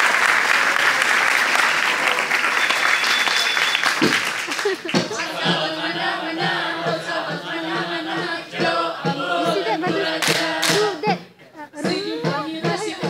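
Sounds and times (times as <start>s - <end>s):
hand claps and body slaps: 3.3s - 5.3s, 10.2s - 10.9s
group chanting in unison: 5.1s - 11.2s.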